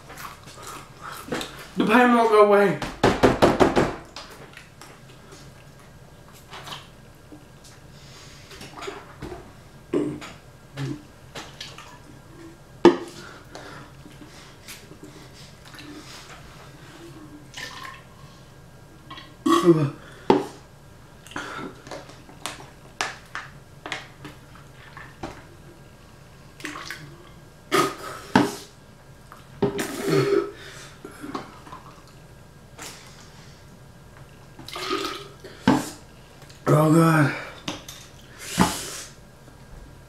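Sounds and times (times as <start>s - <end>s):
person sucking and gulping water: 9.9s - 11.1s, 34.6s - 36.0s
breaths: 13.1s - 17.2s.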